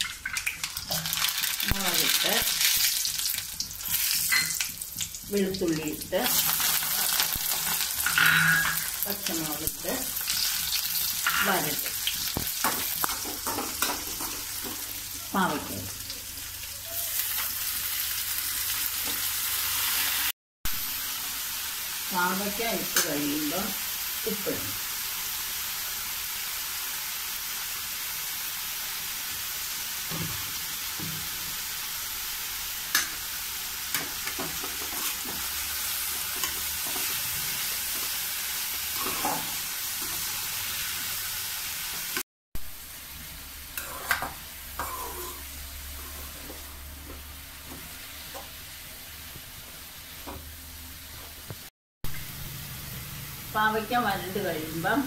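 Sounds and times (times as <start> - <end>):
vegetables sizzling in a pan: 0.0 - 55.0
metal spatula scraping a pan: 39.0 - 40.4, 43.8 - 46.4.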